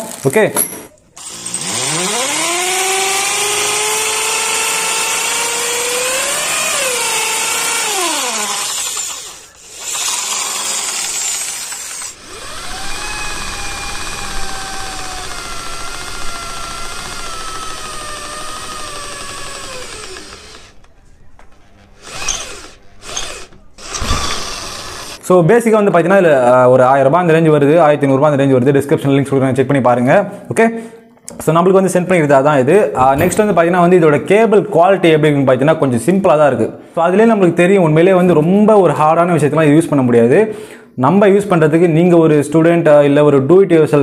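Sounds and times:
drill drilling through metal bar: 1.2s - 20.8s, 21.9s - 25.2s
hammer drill drilling into masonry: 1.2s - 20.9s, 21.8s - 25.2s.

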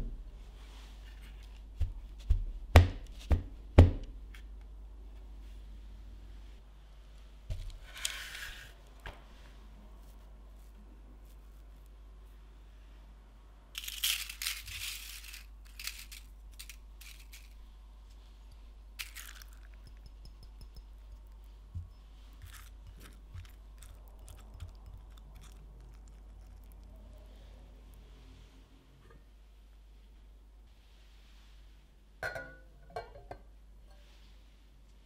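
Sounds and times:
brittle sheets crinkling: 13.8s - 17.6s, 19.0s - 19.8s.

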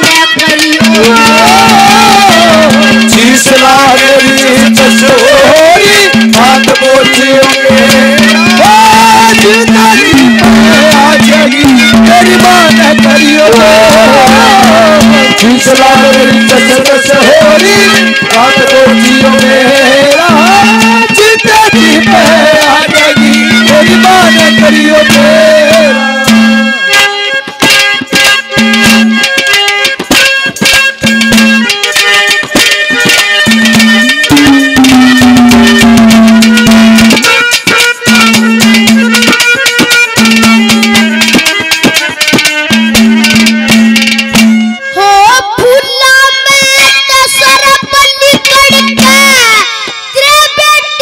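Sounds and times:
hand drums: 0.0s - 51.0s
wavering folk melody: 0.0s - 51.0s.

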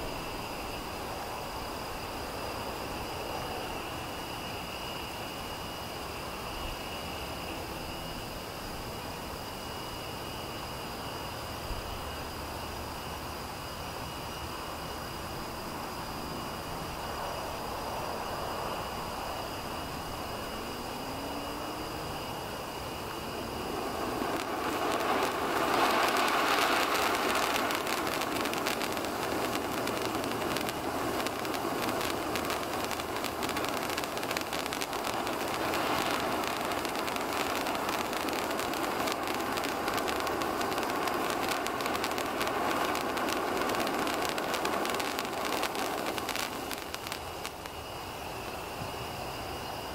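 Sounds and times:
firework sparks hissing and crackling: 0.0s - 49.9s.

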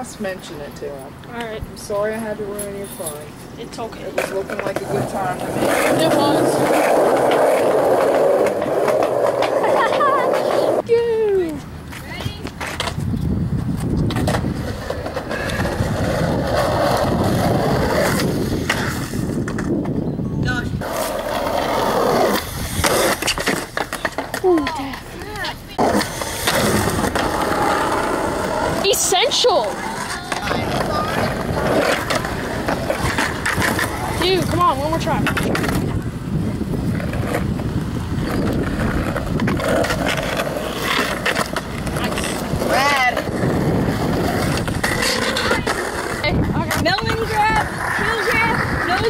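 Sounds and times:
skateboard wheels rolling on asphalt: 3.2s - 49.0s
skateboard clacks: 4.0s - 10.8s, 20.8s - 36.2s, 36.9s - 49.0s.

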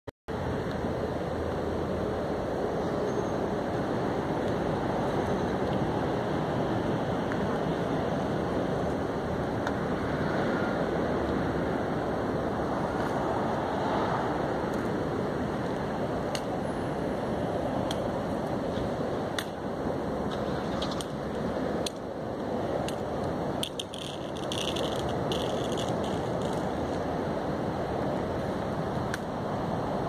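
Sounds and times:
wind buffeting microphone: 0.3s - 30.0s
faint clicks and ticks: 22.8s - 26.7s.

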